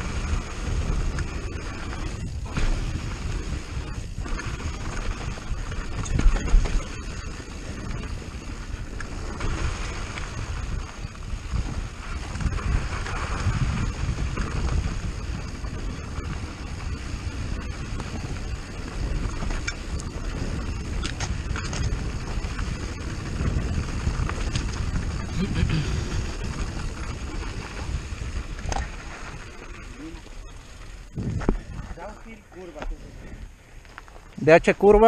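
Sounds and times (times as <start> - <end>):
bike knocks and rattles: 0.0 - 32.1
mountain bike rolling on dirt trail: 0.0 - 35.0
wind noise on microphone: 0.0 - 35.0.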